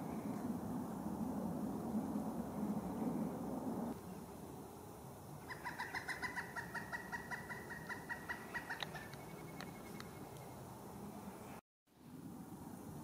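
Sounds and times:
woodpecker calling: 0:05.4 - 0:10.6.

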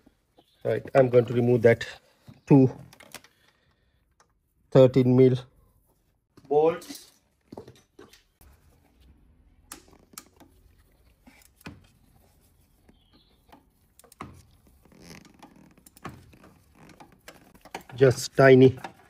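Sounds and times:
metallic clicks and knocks: 0:15.2 - 0:19.0.

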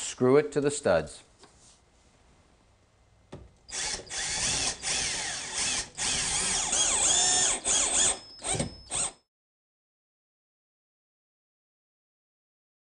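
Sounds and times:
cordless drill driving screws: 0:03.7 - 0:09.2.

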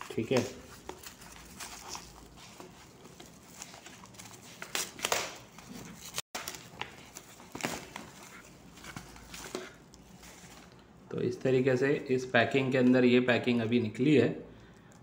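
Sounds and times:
packaging rustling and crinkling: 0:00.0 - 0:10.9.

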